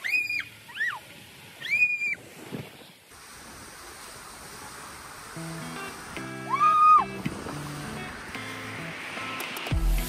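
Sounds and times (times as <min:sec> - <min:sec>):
background music chords: 0:05.4 - 0:10.0.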